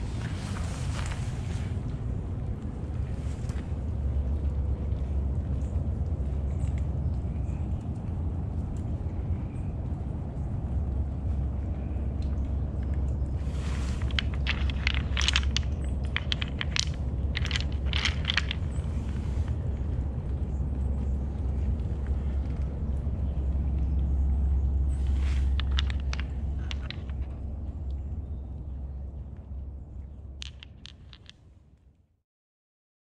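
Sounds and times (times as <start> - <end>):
steady low rumble: 0.0 - 32.0
stones and gravel crunching: 12.8 - 22.3, 24.6 - 27.5, 30.4 - 31.4.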